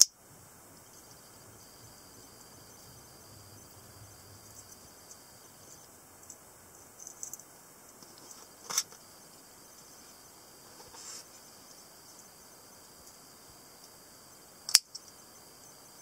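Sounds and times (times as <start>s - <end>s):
small metal clicks of knife: 14.7s - 15.1s.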